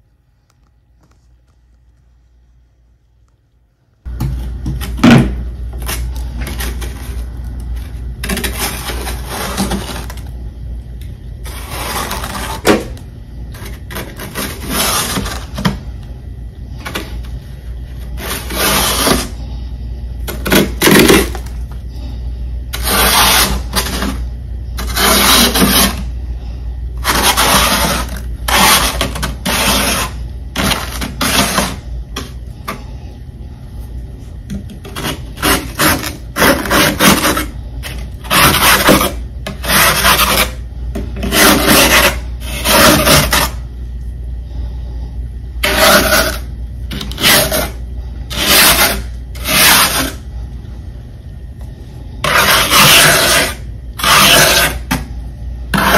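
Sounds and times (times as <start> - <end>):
steady low hum: 0.0 - 55.9
frost being scraped: 5.8 - 10.3, 11.4 - 15.7, 16.7 - 19.7, 20.3 - 26.2, 27.0 - 32.3, 34.8 - 40.6, 41.2 - 43.6, 45.6 - 50.3, 52.1 - 54.9.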